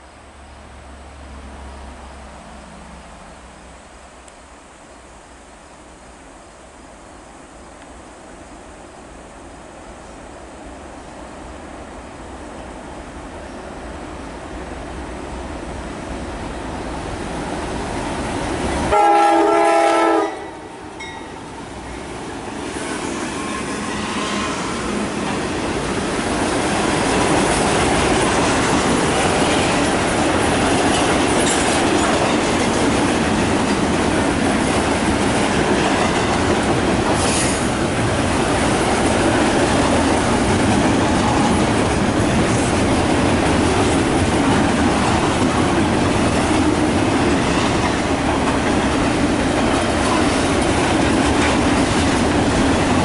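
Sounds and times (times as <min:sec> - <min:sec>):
train wheels rushing: 0:14.5 - 0:53.0
locomotive horn blast: 0:18.9 - 0:20.8
clickety-clack over rail joints: 0:22.6 - 0:53.0.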